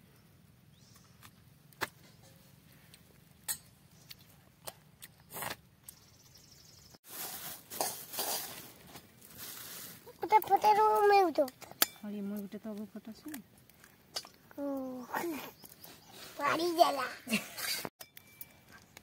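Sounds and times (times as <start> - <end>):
plastic bag rustling: 7.0 - 11.0.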